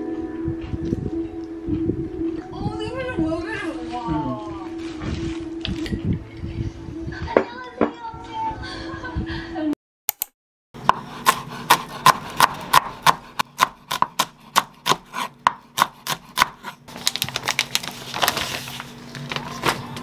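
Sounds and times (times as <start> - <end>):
knife chopping on wooden board: 10.8 - 16.8
plastic film crackling: 16.9 - 20.0.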